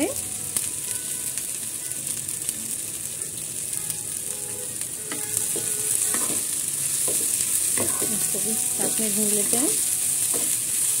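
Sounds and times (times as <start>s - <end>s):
vegetables sizzling in oil: 0.0s - 11.0s
metal spoon scraping a pan: 5.1s - 9.0s.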